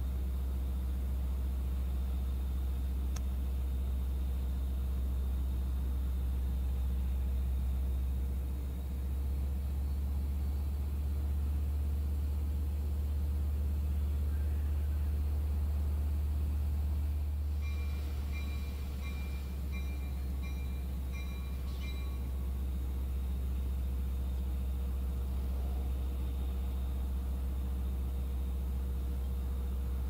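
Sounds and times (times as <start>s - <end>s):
diesel locomotive engine drone: 0.0s - 30.0s
bell ringing: 17.6s - 22.6s.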